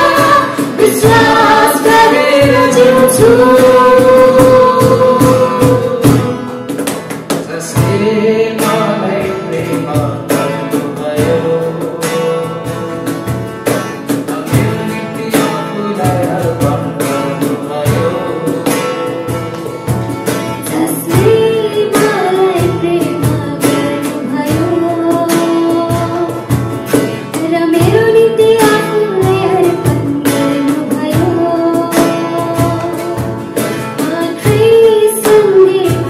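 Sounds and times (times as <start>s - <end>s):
woman singing worship song: 0.0s - 6.6s, 20.6s - 26.6s, 27.3s - 36.0s
strummed acoustic guitar: 0.0s - 36.0s.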